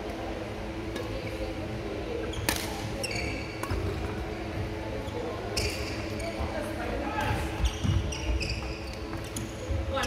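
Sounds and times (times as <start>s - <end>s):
shoes squeaking on court floor: 2.3s - 3.9s, 5.0s - 6.5s, 7.5s - 9.5s
racket hitting shuttlecock: 2.5s - 2.8s.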